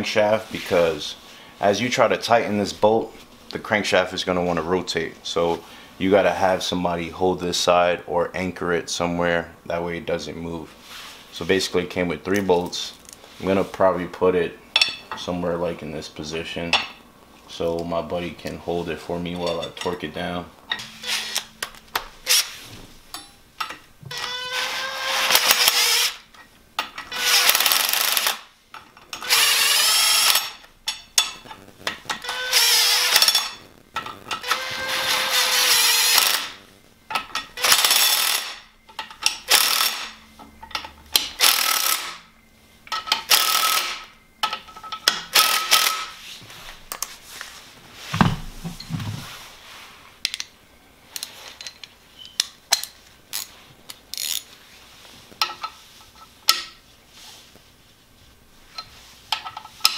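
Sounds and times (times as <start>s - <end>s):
cordless power tool bursts: 24.1s - 26.2s, 27.1s - 28.4s, 29.2s - 30.6s, 32.2s - 33.5s, 34.4s - 36.6s, 37.6s - 38.6s, 39.5s - 40.2s, 41.4s - 42.2s, 43.3s - 44.1s, 45.3s - 46.1s.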